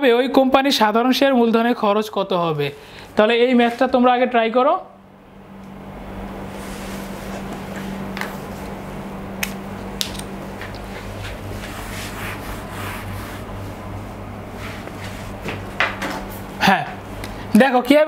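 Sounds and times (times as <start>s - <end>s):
low electrical hum: 0.0s - 18.0s
whiteboard eraser rubbing: 10.9s - 13.8s.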